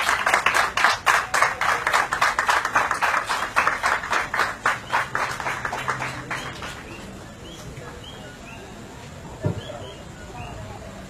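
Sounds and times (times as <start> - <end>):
audience clapping: 0.0 - 7.2.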